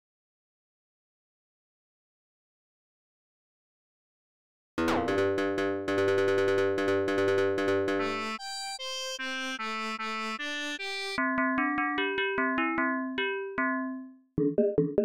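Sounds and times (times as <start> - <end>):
chiptune synthesizer music: 4.8 - 15.0.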